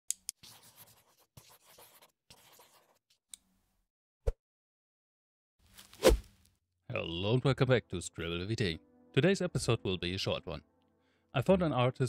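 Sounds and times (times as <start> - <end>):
pencil scratching on paper: 0.4 - 3.1.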